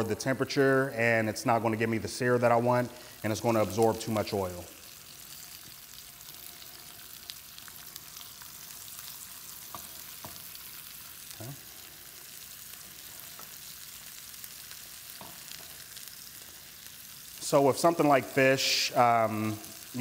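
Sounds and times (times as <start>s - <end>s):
fish sizzling in hot oil: 2.8s - 20.0s.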